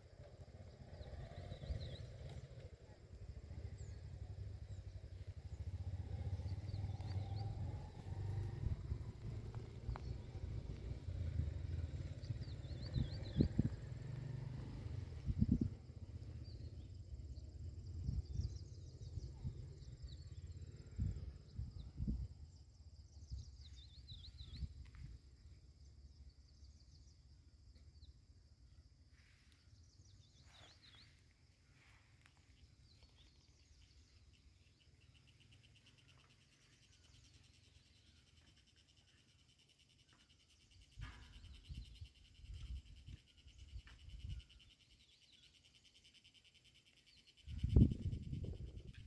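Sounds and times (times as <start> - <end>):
birds chirping: 0.1 - 17.5, 23.0 - 25.1, 29.6 - 49.0.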